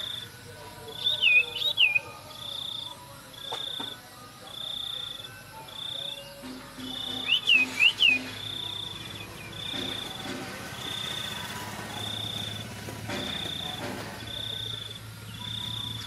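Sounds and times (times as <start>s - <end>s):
high buzzing chirp: 0.0s - 16.0s
loud squeaky calls: 0.9s - 2.9s, 4.5s - 12.7s.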